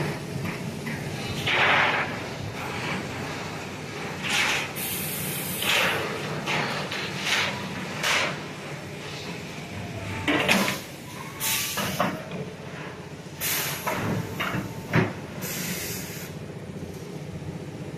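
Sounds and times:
short bursts of hiss: 0:15.4 - 0:16.4.

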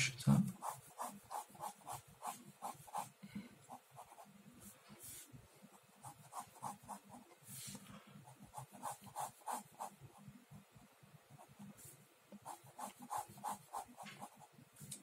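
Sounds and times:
pen scratching on paper: 0:00.5 - 0:04.3, 0:05.0 - 0:07.7, 0:08.3 - 0:10.0, 0:11.4 - 0:14.5.

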